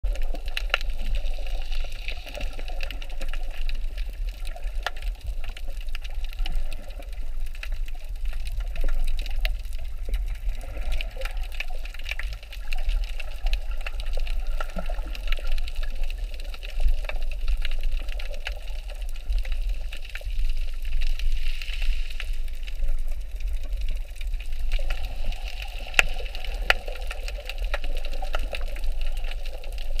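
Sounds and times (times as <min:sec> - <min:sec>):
muffled underwater rumble: 0:00.0 - 0:30.0
sharp small clicks and crackles: 0:00.1 - 0:30.0.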